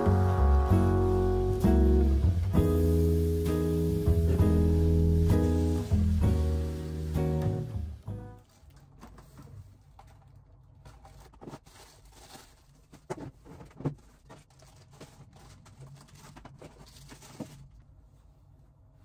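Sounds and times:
plastic bag rustling: 0:04.2 - 0:18.2.

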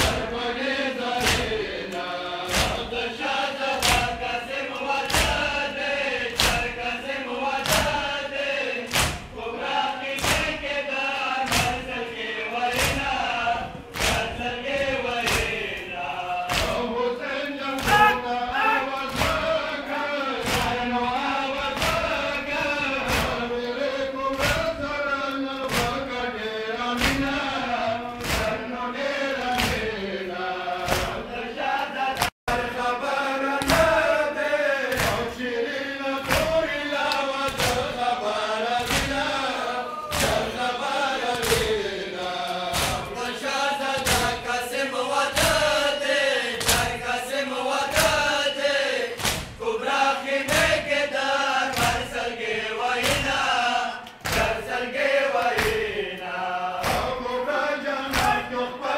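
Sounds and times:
men chanting in unison: 0:00.0 - 0:58.9
hand slaps on chest: 0:01.2 - 0:02.8, 0:03.8 - 0:04.2, 0:05.0 - 0:05.4, 0:06.4 - 0:06.7, 0:07.6 - 0:08.0, 0:08.9 - 0:09.3, 0:10.2 - 0:10.5, 0:11.5 - 0:11.8, 0:12.8 - 0:13.2, 0:13.9 - 0:14.3, 0:15.2 - 0:15.6, 0:16.5 - 0:16.8, 0:27.0 - 0:27.2, 0:28.2 - 0:28.6, 0:29.6 - 0:29.9, 0:37.1 - 0:37.9, 0:38.8 - 0:39.2, 0:41.3 - 0:41.7, 0:42.7 - 0:43.1, 0:44.0 - 0:44.4, 0:46.6 - 0:47.0, 0:49.2 - 0:49.6, 0:51.7 - 0:52.0, 0:53.0 - 0:53.3, 0:56.8 - 0:57.1.

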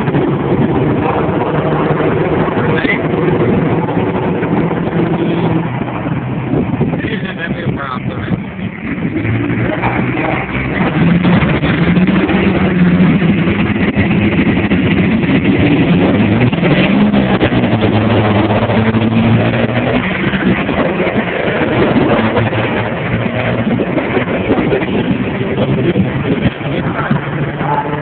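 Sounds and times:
diesel truck engines idling and revving: 0:00.0 - 0:28.0.

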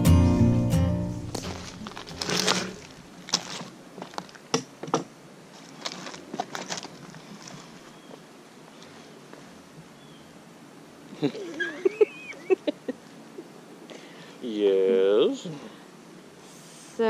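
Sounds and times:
footsteps on dry leaves: 0:01.1 - 0:04.5, 0:05.5 - 0:09.5.

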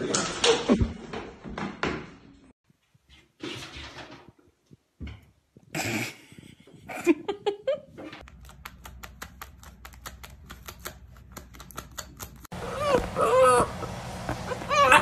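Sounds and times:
gliding cries: 0:12.5 - 0:15.0.

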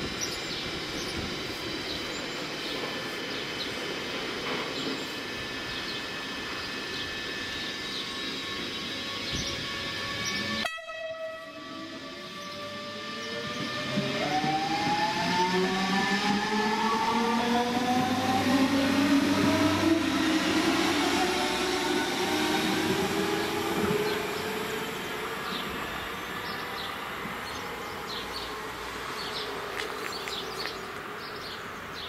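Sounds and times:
train motor whine rising: 0:00.0 - 0:32.0
wheel and rail rumble: 0:11.8 - 0:32.0.

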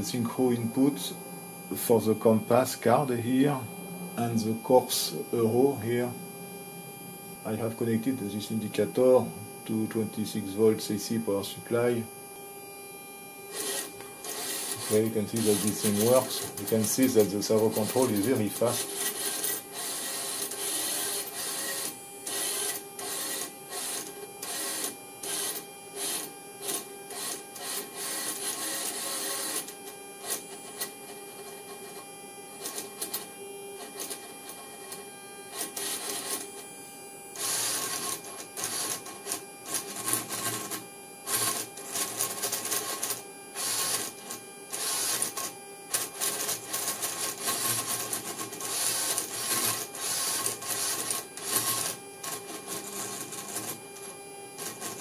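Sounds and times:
servo motors whirring: 0:13.5 - 0:29.8, 0:37.3 - 0:53.8.

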